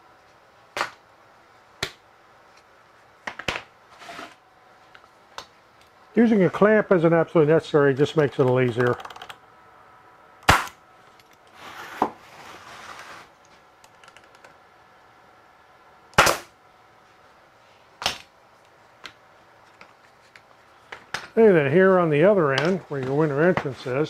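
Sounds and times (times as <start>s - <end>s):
air stapler shots: 10.4s - 10.8s, 16.2s - 16.5s.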